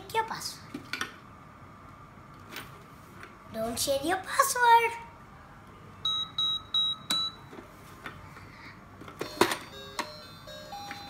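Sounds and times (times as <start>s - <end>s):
toy electronic tones: 6.0s - 7.4s, 9.2s - 11.0s
toy keypad beeping: 6.0s - 7.5s, 9.2s - 11.0s.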